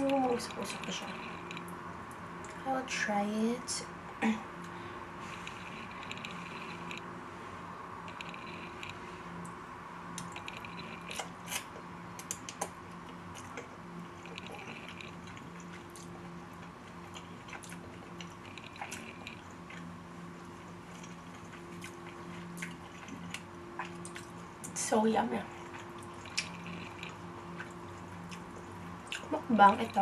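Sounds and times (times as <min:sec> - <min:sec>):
faint steady hum: 0:00.0 - 0:30.0
wet chewing mouth clicks: 0:13.4 - 0:19.9, 0:20.9 - 0:24.8, 0:25.6 - 0:30.0.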